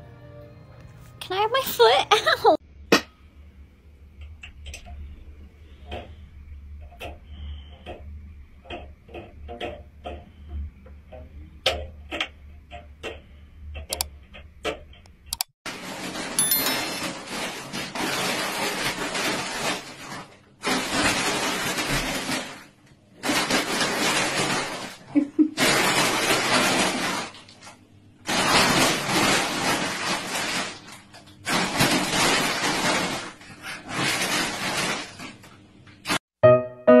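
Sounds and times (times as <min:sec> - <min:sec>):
plastic bag rustling and crinkling: 0:15.7 - 0:36.2.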